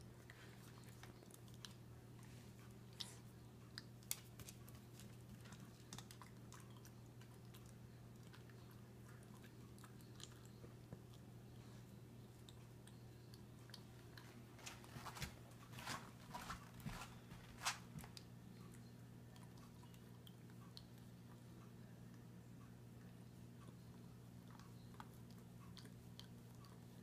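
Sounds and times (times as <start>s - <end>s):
dog chewing: 0.0s - 11.7s.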